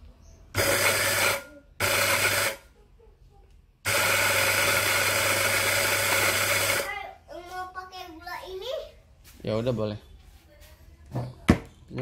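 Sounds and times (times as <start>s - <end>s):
coffee grinder grinding: 0.6s - 2.6s, 3.9s - 6.9s
motor hum: 3.8s - 6.9s.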